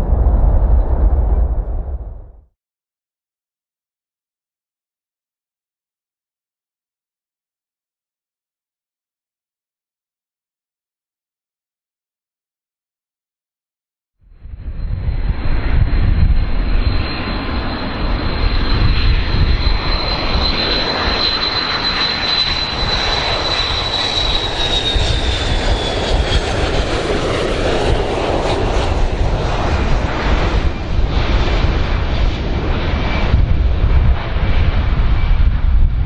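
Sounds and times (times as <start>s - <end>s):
high jet engine whine: 0.0s - 2.4s, 14.3s - 36.0s
jet engines rumbling: 0.0s - 2.5s, 14.4s - 36.0s.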